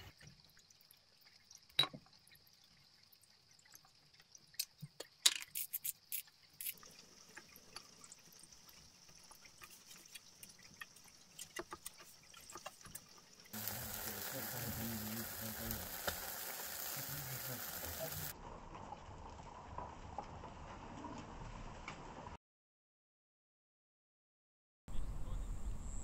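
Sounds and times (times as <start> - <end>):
chicken sizzling on a grill: 0.0 - 22.1
faint steady high hiss: 11.0 - 18.3.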